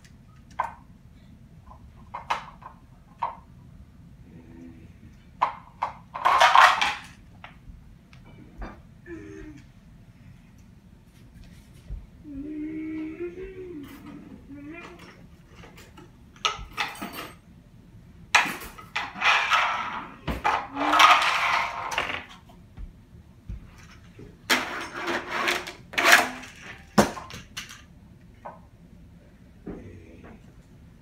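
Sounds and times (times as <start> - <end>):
toy trucks clattering on ramps: 5.4 - 7.2, 18.4 - 22.4, 24.5 - 27.9.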